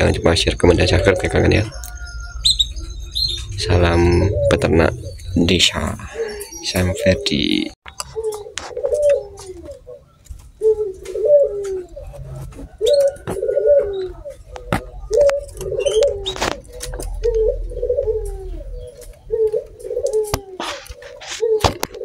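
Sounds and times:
high chirps: 0.0 - 8.4
dove cooing: 0.0 - 22.0.

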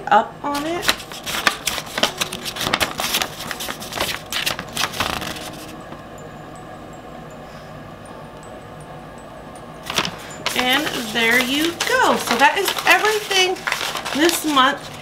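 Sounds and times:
paper sheet rustling: 0.5 - 5.8, 9.8 - 15.0.

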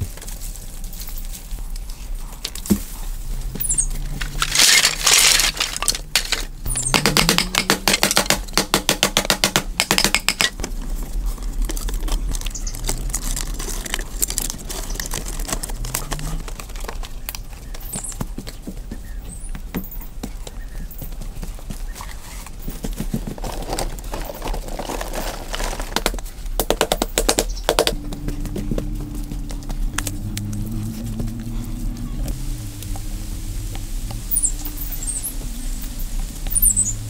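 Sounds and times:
bamboo pieces knocking and clicking: 3.6 - 20.6, 22.8 - 32.0.

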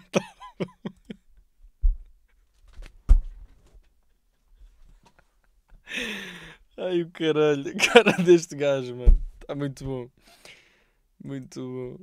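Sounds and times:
man laughing hard: 0.0 - 1.3, 7.8 - 8.4
heavy thumps: 1.8 - 2.1, 2.8 - 3.6, 9.0 - 10.0.

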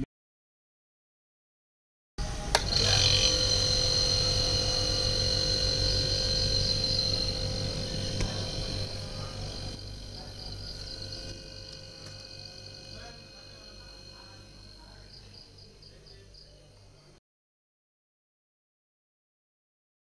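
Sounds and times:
compressor humming: 2.2 - 17.2
faint high whine: 2.2 - 17.2
compressor clicking on: 2.5 - 15.0.

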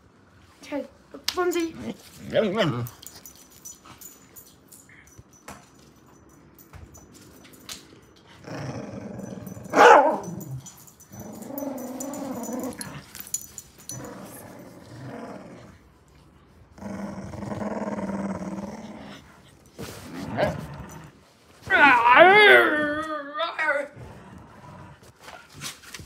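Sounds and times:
dog growling in play: 8.3 - 21.2, 23.8 - 25.5
dog barking: 9.7 - 10.3.

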